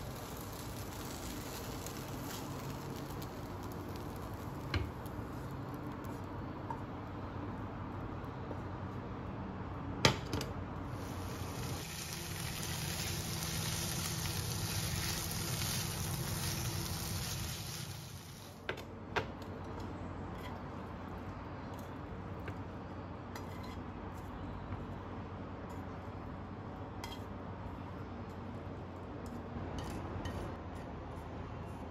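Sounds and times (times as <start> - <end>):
noodles sizzling in a frying pan: 0.0 - 6.6, 10.8 - 18.7.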